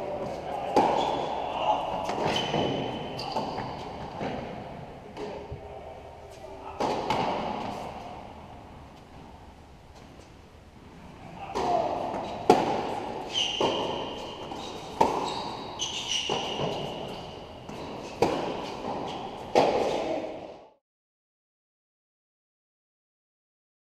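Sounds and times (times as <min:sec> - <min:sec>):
racket hitting tennis ball: 0:00.1 - 0:01.3, 0:01.9 - 0:05.4, 0:06.8 - 0:08.0, 0:11.5 - 0:20.3
high drawn-out squeaks: 0:02.2 - 0:04.0, 0:13.3 - 0:19.4.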